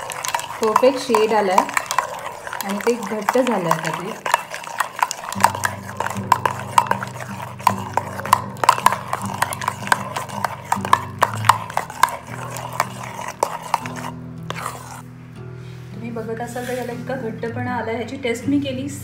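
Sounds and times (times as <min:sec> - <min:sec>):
spoon beating in steel bowl: 0:00.0 - 0:15.0.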